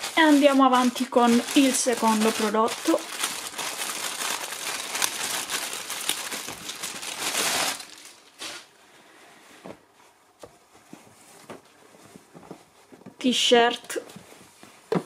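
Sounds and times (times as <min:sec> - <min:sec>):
plastic bag crinkling: 0:00.0 - 0:08.7
fabric rustling: 0:00.0 - 0:15.0.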